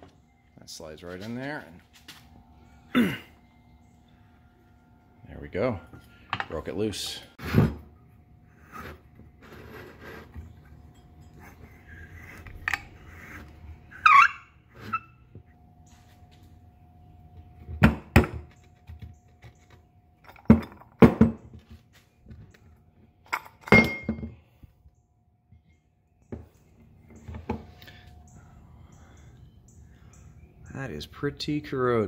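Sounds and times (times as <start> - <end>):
metal parts clunking on workbench: 23.3 - 24.4.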